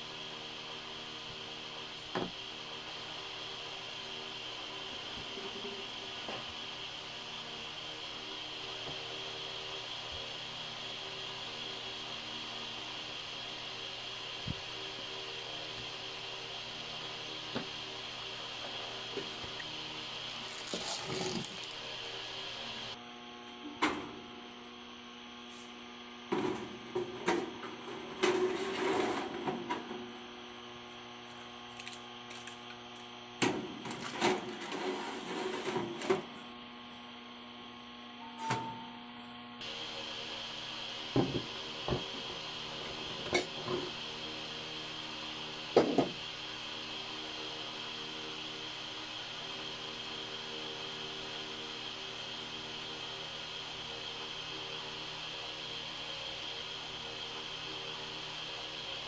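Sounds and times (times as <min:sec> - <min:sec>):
steady electrical hum: 0:00.0 - 0:23.3.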